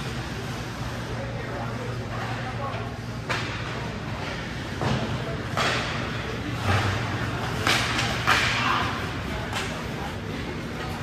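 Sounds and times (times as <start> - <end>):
hockey sticks and puck knocking: 4.8 - 6.1, 7.4 - 10.0.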